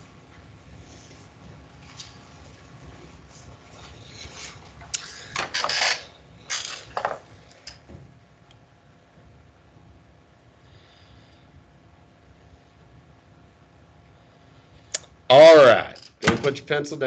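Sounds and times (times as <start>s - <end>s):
handling rustling and clattering: 0.3s - 8.1s.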